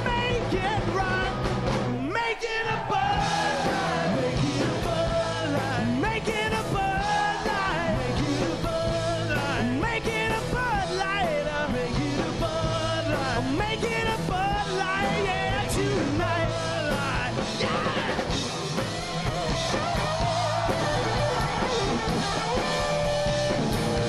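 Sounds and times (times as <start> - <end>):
man singing: 0.0 - 1.4, 2.0 - 18.3
electric guitar: 0.0 - 24.0
live rock band playing: 0.0 - 24.0.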